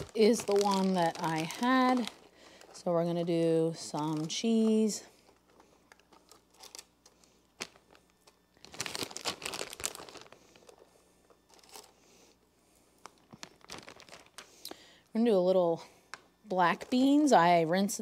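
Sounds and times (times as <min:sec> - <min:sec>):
plastic bag crinkling: 0:00.0 - 0:12.0, 0:13.0 - 0:14.8.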